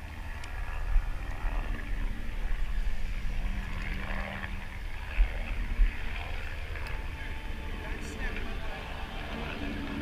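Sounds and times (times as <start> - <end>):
low engine-like rumble: 0.0 - 10.0.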